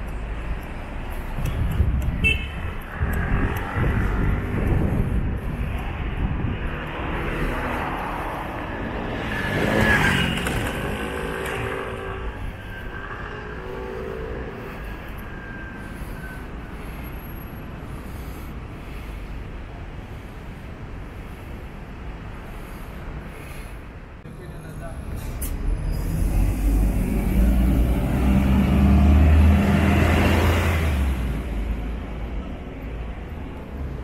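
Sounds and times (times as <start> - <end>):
cars driving past: 0.0 - 20.2, 24.4 - 34.0.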